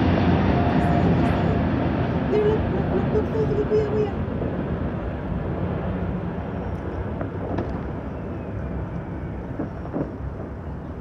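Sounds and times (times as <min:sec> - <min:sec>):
low rumble of city noise: 0:00.0 - 0:11.0
faint distant pops: 0:06.7 - 0:11.0.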